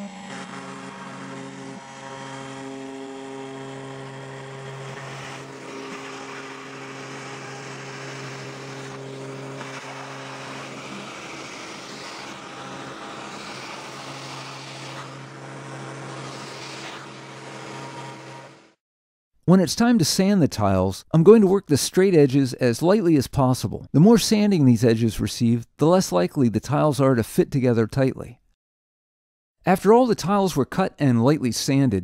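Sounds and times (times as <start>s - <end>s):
router bit cutting wood hiss: 0.0s - 18.8s
router motor hum: 0.0s - 18.8s.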